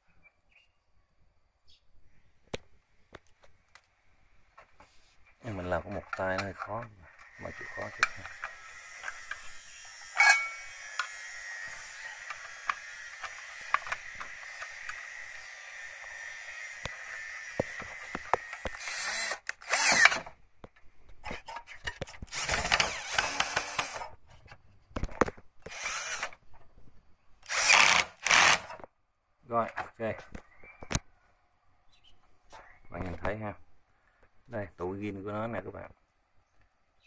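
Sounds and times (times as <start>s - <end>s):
cordless drill running in bursts: 7.2s - 20.2s, 22.3s - 24.1s, 25.7s - 26.3s, 27.5s - 28.7s.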